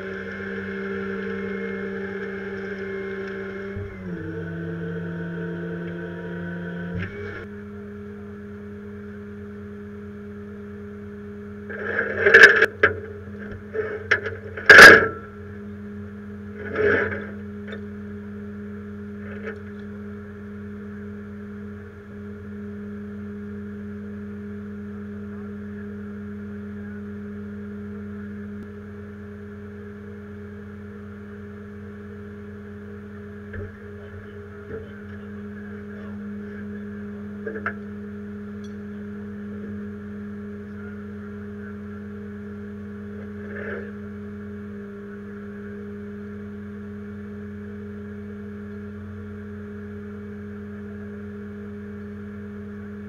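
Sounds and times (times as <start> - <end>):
truck engine idling: 0.0 - 53.0
loud metal clanks: 14.6 - 15.3.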